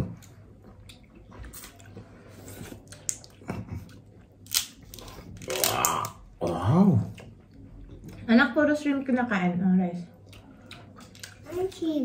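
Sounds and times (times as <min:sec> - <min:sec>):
soft chewing: 0:00.0 - 0:05.4, 0:10.1 - 0:11.9
sharp shell cracks and snaps: 0:04.4 - 0:06.2.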